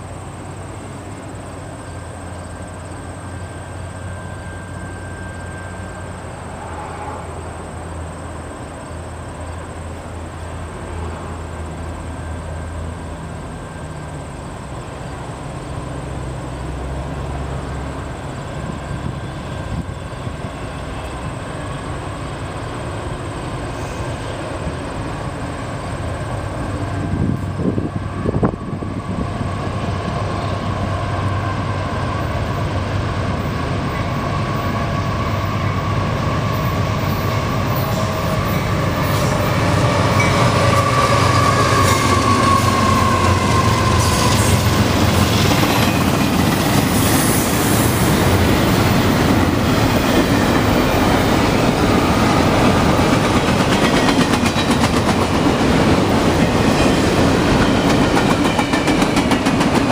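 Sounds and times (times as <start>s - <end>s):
diesel locomotives rumbling: 0.0s - 59.9s.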